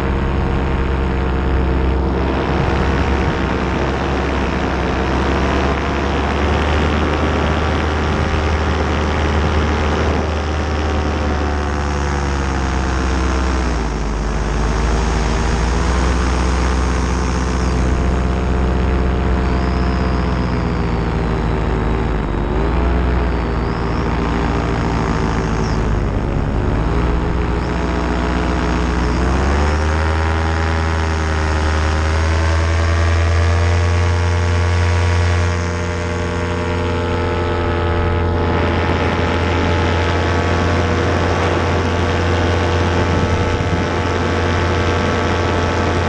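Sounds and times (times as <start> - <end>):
paramotor engine and propeller: 0.0 - 46.0.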